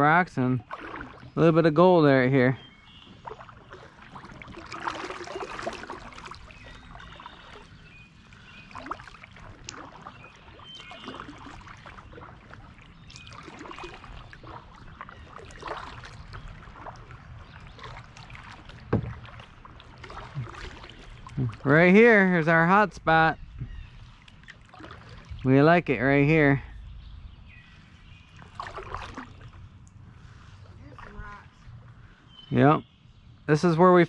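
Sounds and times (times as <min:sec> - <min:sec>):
paddle splashing in water: 0:00.6 - 0:01.8, 0:02.8 - 0:22.4, 0:23.7 - 0:25.5, 0:27.9 - 0:31.7
water dripping: 0:08.3 - 0:21.7.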